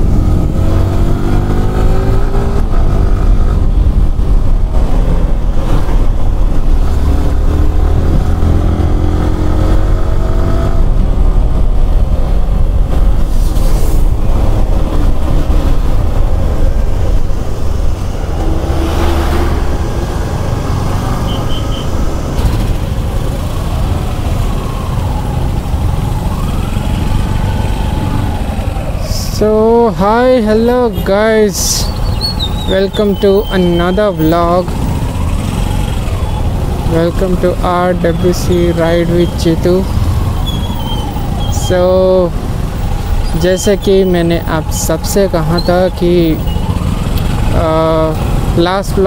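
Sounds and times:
motorcycle engine accelerating: 0.0s - 12.5s, 14.2s - 28.6s.

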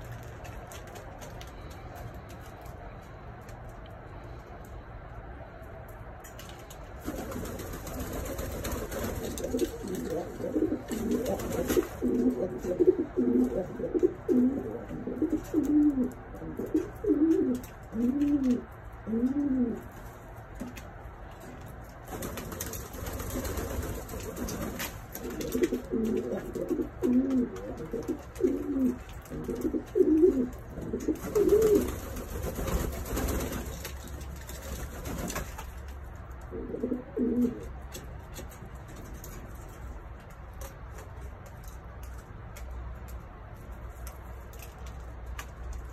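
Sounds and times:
pigeons cooing: 7.1s - 19.9s, 23.2s - 32.8s, 36.5s - 37.8s.

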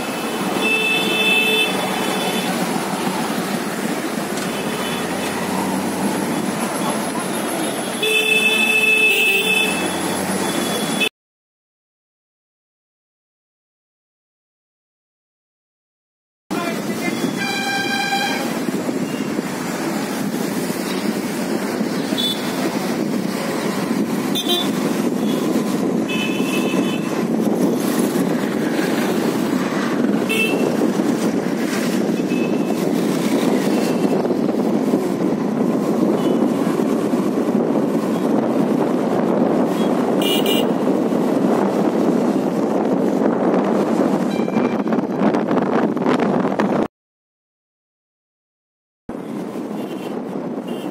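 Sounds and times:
wind and road noise: 0.0s - 11.1s, 16.5s - 46.9s, 49.1s - 50.9s
vehicle horn toot: 17.2s - 18.5s, 30.3s - 30.7s, 40.2s - 40.8s.

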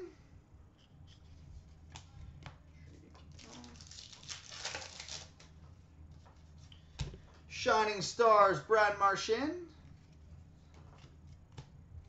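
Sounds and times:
trading cards rustling: 0.8s - 5.6s.

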